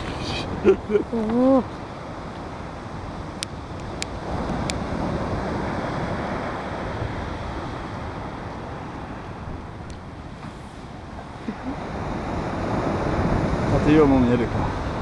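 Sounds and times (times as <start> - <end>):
surf washing onto beach: 0.0 - 15.0
wind buffeting microphone: 0.0 - 15.0.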